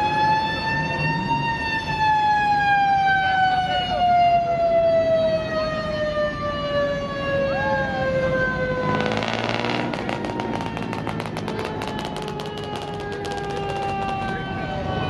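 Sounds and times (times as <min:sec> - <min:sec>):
siren winding down: 0:00.0 - 0:15.0
rapid rattling crackle: 0:09.0 - 0:14.4.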